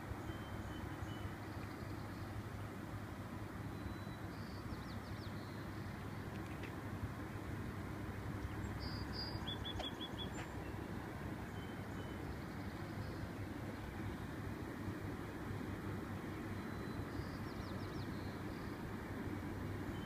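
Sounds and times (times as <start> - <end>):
low outdoor rumble: 0.0 - 20.0
small birds chirping: 8.4 - 13.4, 16.5 - 18.9.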